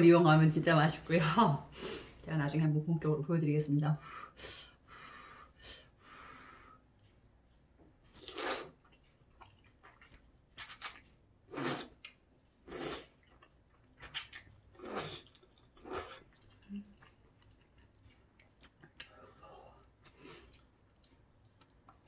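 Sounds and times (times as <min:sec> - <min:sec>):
soft breaths: 0:04.0 - 0:07.6
person slurping noodles: 0:08.1 - 0:08.8, 0:11.5 - 0:12.0, 0:12.6 - 0:13.2, 0:14.8 - 0:16.3.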